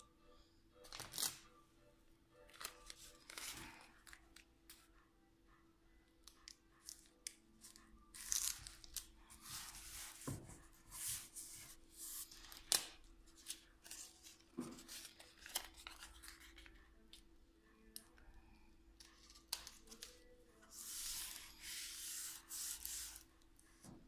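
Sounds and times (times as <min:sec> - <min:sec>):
tape rustling: 0:00.9 - 0:01.4, 0:02.5 - 0:04.9, 0:06.2 - 0:16.9.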